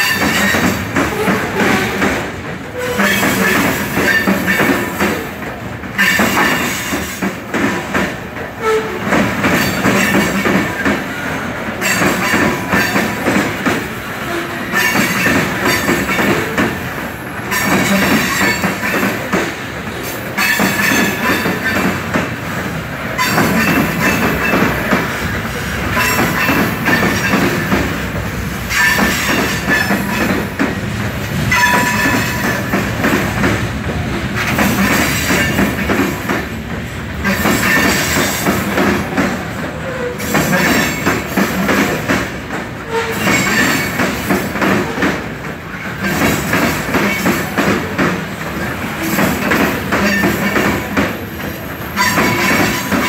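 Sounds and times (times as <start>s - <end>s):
train wheels clattering over rails: 0.0s - 53.0s
train wheels squealing: 42.9s - 44.1s, 50.0s - 53.0s.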